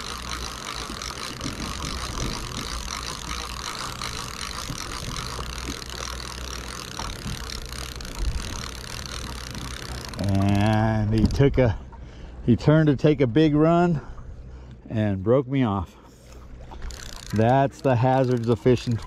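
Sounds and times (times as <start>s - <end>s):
boat engine drone: 0.0s - 19.0s
rush of wind and water: 0.8s - 5.8s.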